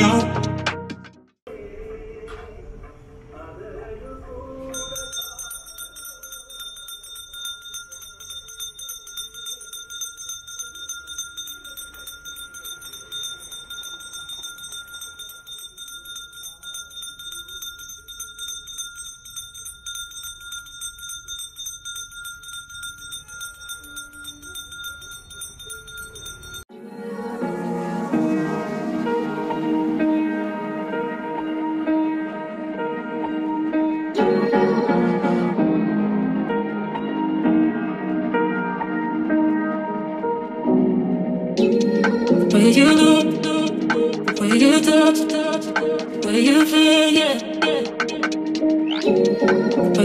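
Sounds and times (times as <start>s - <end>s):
hand bell rung rapidly: 4.7s - 26.7s.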